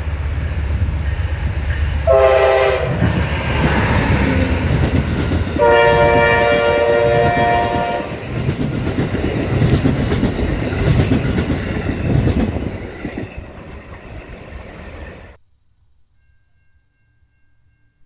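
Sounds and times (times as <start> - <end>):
train wheels rumbling on rail: 0.0 - 15.4
train horn: 2.0 - 3.1, 5.5 - 8.2.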